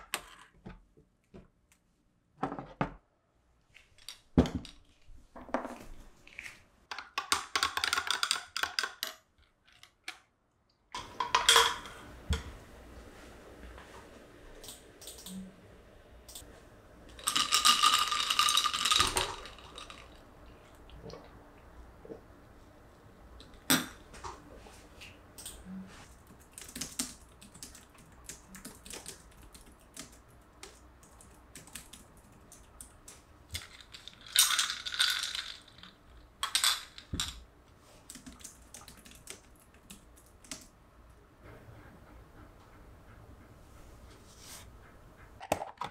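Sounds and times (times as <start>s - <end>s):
clinking rattle: 17.2s - 20.2s, 33.6s - 37.4s.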